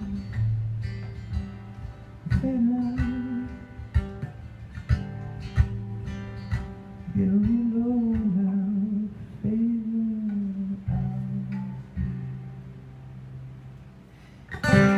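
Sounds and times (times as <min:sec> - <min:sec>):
acoustic guitar strumming: 0:00.0 - 0:14.9.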